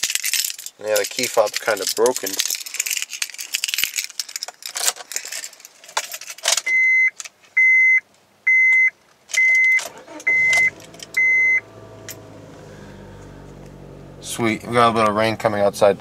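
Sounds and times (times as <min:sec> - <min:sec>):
dashboard warning chimes: 0:06.7 - 0:12.4
ignition key rattling: 0:09.4 - 0:12.6
car engine starting and idling: 0:09.8 - 0:16.0.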